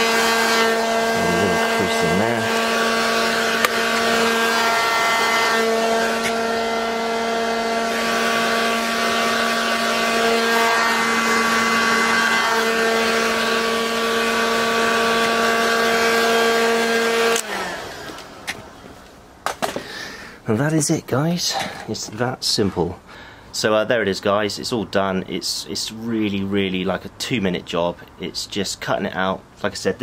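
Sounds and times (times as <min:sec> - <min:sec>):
heat gun blowing air: 0:00.0 - 0:18.8.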